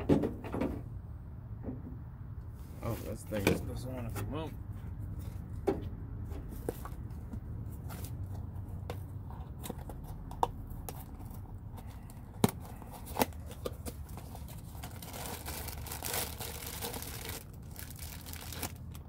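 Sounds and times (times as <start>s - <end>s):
plastic sheet crinkling and rustling: 13.0s - 19.0s.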